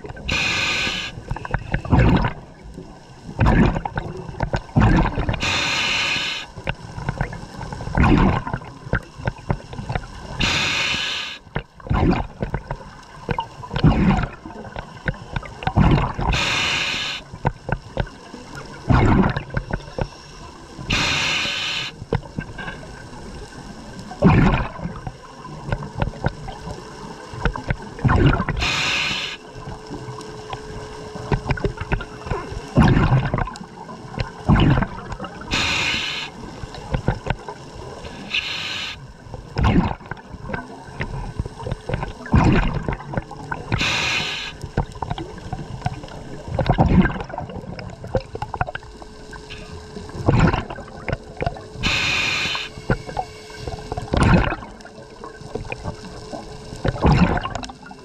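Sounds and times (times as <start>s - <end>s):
gurgle of exhaled bubbles: 0.0s - 20.1s, 20.7s - 58.0s
regulator hiss on inhalation: 0.2s - 1.2s, 5.4s - 6.6s, 10.4s - 11.5s, 16.3s - 17.3s, 20.9s - 22.0s, 28.6s - 29.5s, 35.5s - 36.4s, 38.1s - 39.0s, 43.7s - 44.7s, 51.8s - 54.0s.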